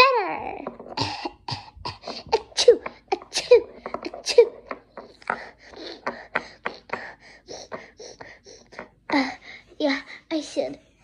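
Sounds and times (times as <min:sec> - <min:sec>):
child making wordless vocal sounds: 0:00.0 - 0:01.1.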